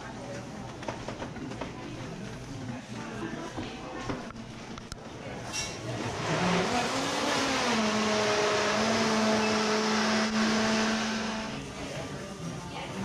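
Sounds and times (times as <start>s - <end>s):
machine motor humming: 6.2s - 11.7s.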